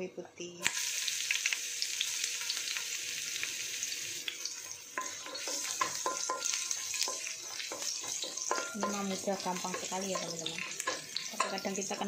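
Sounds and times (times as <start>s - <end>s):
garlic sizzling in hot oil: 0.6s - 12.0s
spatula scraping and knocking wok: 4.3s - 12.0s.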